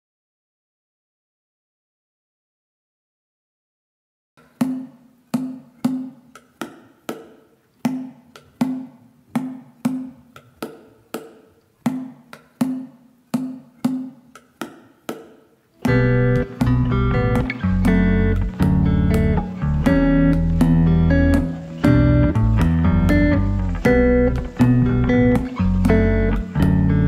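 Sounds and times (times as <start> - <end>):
hand percussion strikes: 4.4 - 27.0
loud guitar: 15.8 - 27.0.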